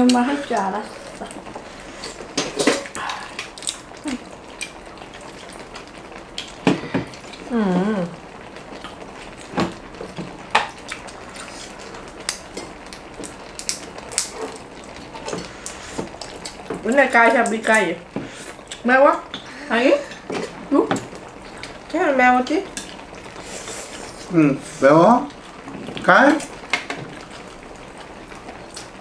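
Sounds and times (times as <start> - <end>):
person humming: 7.4 - 8.2.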